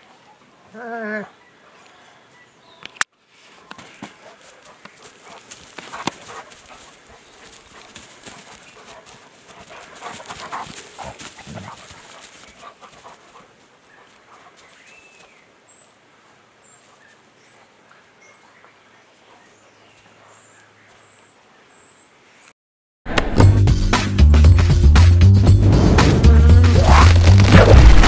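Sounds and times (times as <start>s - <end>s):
paws scrabbling through hay: 3.3s - 15.3s, 26.8s - 28.0s.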